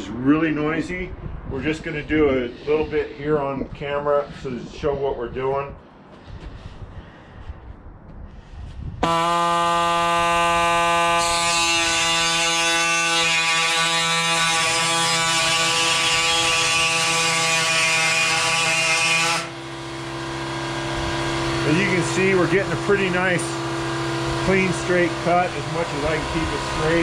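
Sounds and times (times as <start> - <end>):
pneumatic saw cutting metal: 9.0 - 27.0.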